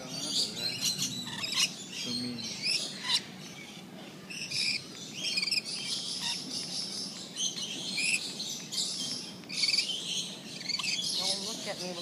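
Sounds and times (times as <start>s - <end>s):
lorikeets chirping and screeching: 0.0s - 12.0s.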